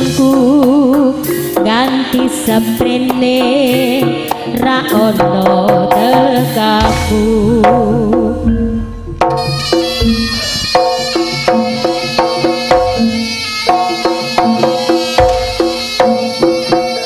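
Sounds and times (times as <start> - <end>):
pitched percussion struck: 0.0 - 17.0
deep drum and gong thumps: 6.8 - 13.2.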